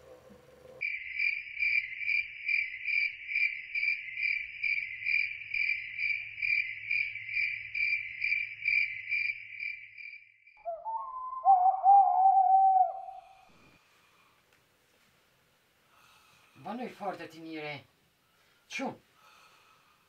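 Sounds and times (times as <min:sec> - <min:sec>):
cricket chirping: 0:00.0 - 0:13.4.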